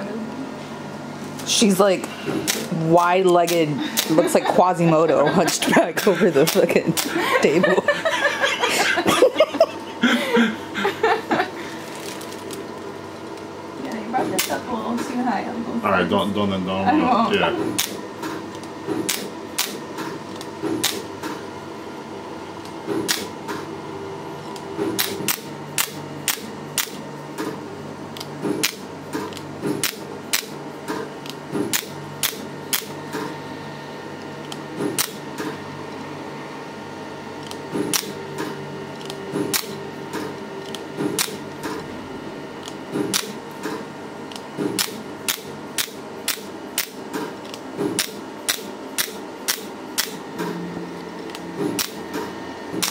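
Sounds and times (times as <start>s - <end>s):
laser unit hum: 0.0s - 52.9s
laser pulse snaps: 19.0s - 19.8s, 23.0s - 23.3s, 24.9s - 27.5s, 29.7s - 31.0s, 31.7s - 33.0s, 44.6s - 47.0s, 48.0s - 50.2s.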